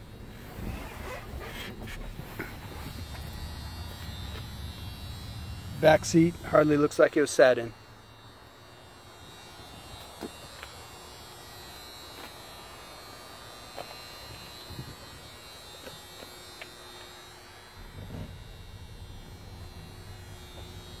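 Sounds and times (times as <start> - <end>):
faint hum and buzz: 0.0 - 21.0
low rumble: 17.8 - 21.0.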